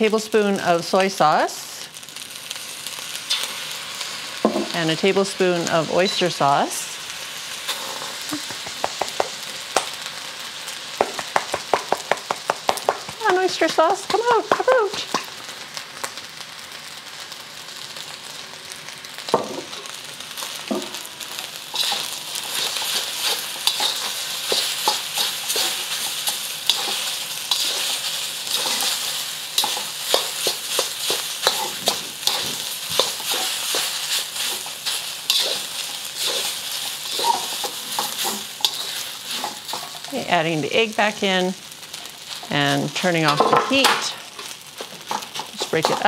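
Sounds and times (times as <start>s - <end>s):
rice sizzling in a wok: 0.0s - 46.0s
spatula scraping a wok: 19.8s - 40.2s, 41.7s - 46.0s.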